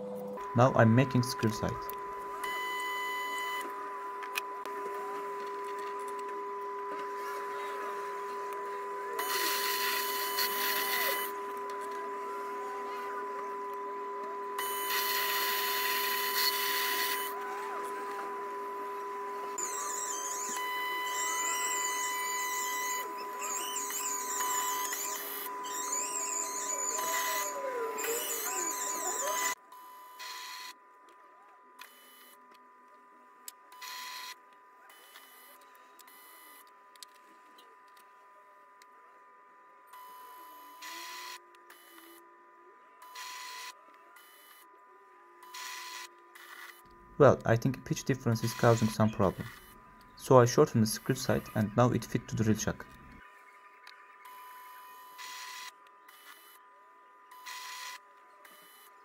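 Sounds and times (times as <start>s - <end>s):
lathe whining: 0.0s - 29.6s.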